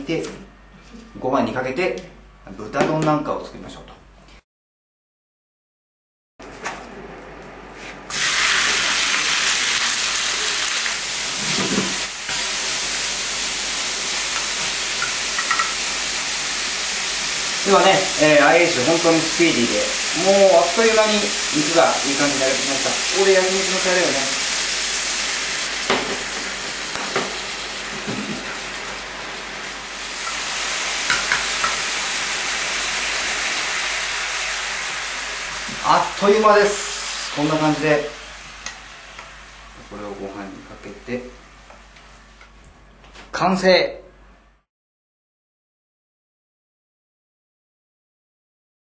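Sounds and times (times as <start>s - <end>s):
pork sizzling in frying pan: 8.1s - 40.1s.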